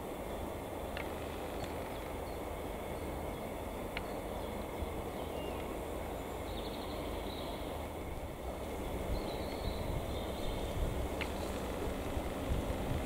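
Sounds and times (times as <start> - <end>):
diesel locomotive rumbling: 0.0 - 13.0
faint bird chirps: 8.6 - 11.9.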